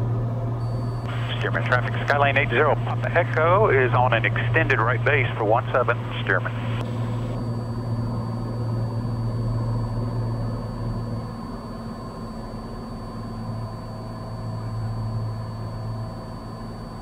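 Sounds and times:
propeller plane engine droning: 0.0 - 17.0
thin high whine: 0.6 - 17.0.

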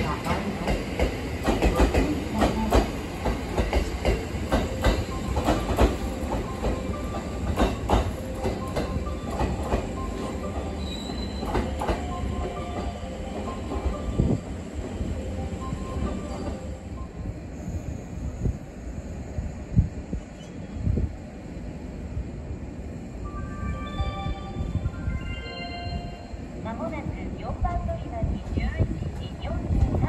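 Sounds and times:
train wheels clicking over rail joints: 0.3 - 12.9.

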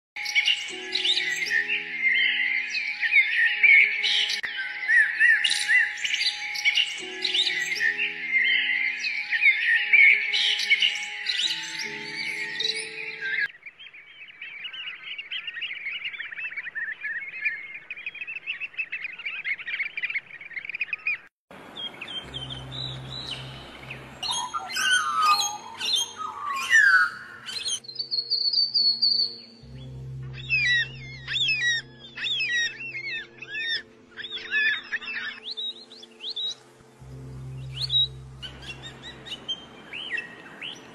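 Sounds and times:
soft music backing: 0.2 - 13.5, 22.2 - 40.9
small birds chirping: 0.2 - 40.9.

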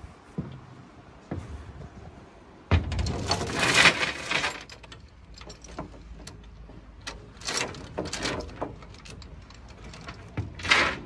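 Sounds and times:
steel chain rattling and clinking: 2.9 - 11.0.

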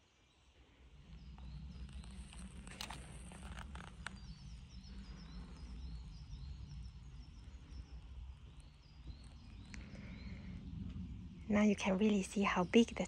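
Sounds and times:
small birds chirping: 0.0 - 13.0
low steady rumble: 0.6 - 13.0.

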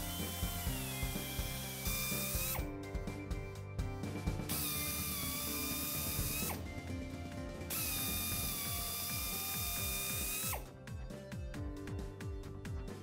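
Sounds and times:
drill whining through tire rubber: 0.0 - 2.8, 4.5 - 6.7, 7.7 - 10.7.

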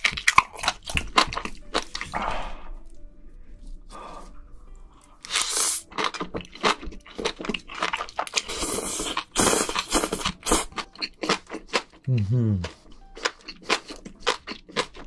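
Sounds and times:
chewing with mouth clicks: 0.0 - 2.2, 5.2 - 15.0.

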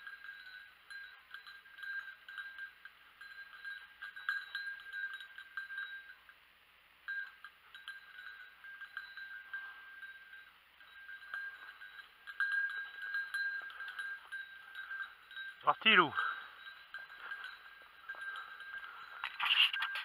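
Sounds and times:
dog collar bell jingling: 0.0 - 6.4, 7.0 - 20.0.

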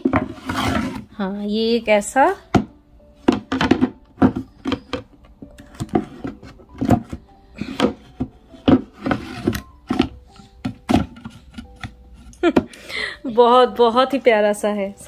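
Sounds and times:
wood rubbing and scraping: 0.0 - 1.0, 3.4 - 12.7.

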